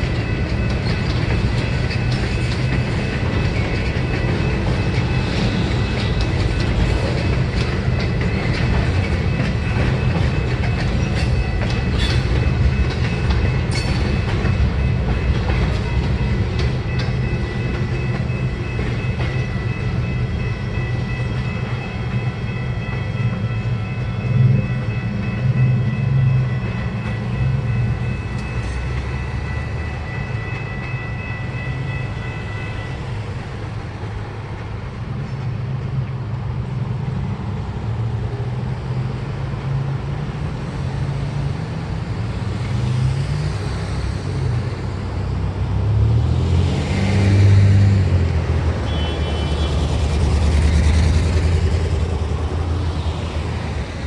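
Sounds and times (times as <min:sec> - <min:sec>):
wheels clacking over rail joints: 0:00.0 - 0:31.1
freight train rumbling past: 0:00.0 - 0:54.0.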